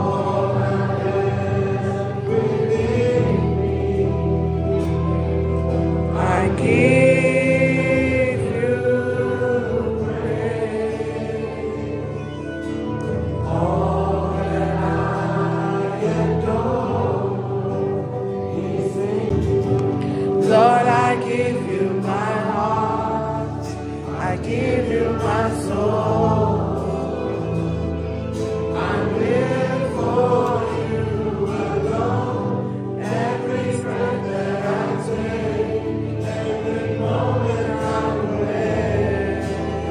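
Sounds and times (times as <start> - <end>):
choir singing: 0.0 - 39.9.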